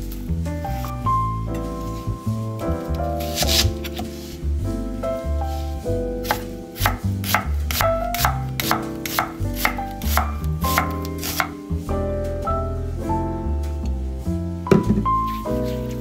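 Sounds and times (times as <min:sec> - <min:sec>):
knife chopping on wooden board: 0:06.2 - 0:11.5.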